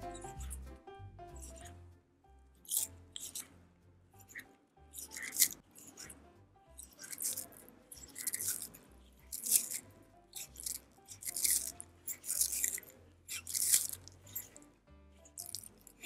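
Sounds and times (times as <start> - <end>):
tortoise crunching fruit: 2.6 - 3.6, 4.2 - 16.0.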